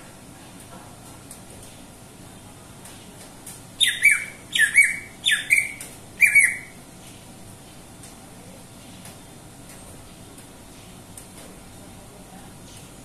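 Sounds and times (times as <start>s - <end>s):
bird giving harsh calls: 3.8s - 6.8s.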